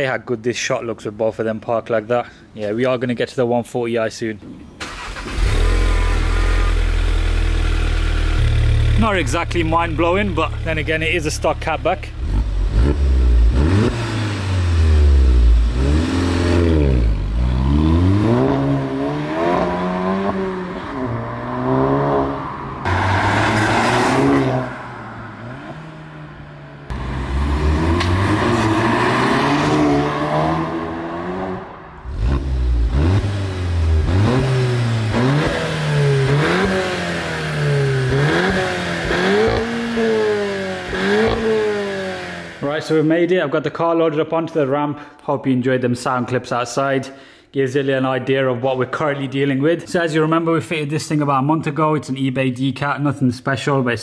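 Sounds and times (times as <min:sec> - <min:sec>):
car exhaust revving: 0:05.0 - 0:42.7.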